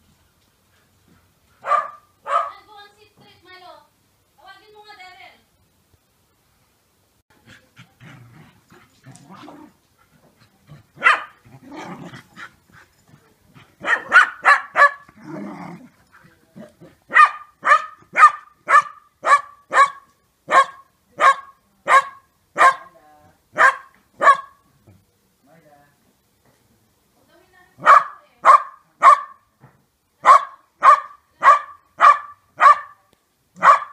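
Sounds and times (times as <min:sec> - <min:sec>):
dogs barking sharply: 0:01.6 - 0:02.6, 0:11.0 - 0:12.2, 0:13.8 - 0:15.2, 0:17.1 - 0:22.9, 0:23.6 - 0:24.6, 0:27.8 - 0:29.5, 0:30.2 - 0:33.9
dogs growling: 0:07.4 - 0:09.8, 0:10.4 - 0:13.8, 0:15.0 - 0:17.1.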